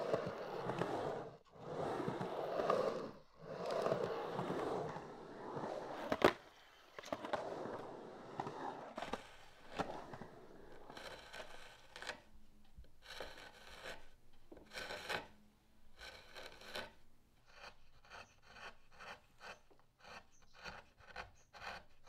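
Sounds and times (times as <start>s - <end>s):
skateboard wheels rolling on concrete: 0.0s - 12.3s
hand gouge cutting wood: 17.5s - 22.0s.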